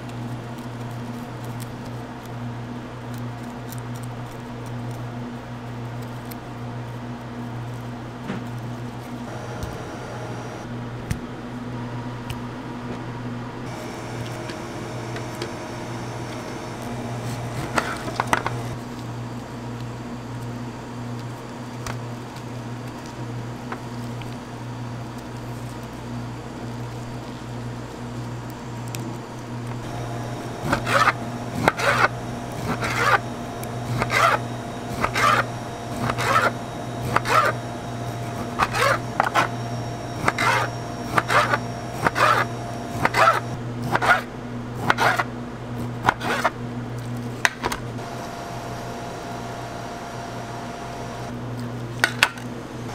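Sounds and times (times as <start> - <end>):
fruit handling and trimming: 0.0 - 11.3, 13.7 - 47.9
low hum: 13.4 - 19.4, 29.6 - 43.7.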